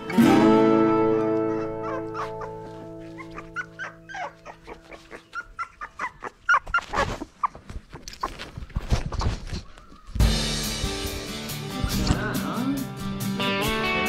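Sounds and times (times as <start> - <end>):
background music: 0.0 - 5.0, 10.2 - 14.0
puppies yipping and whimpering: 0.9 - 10.2.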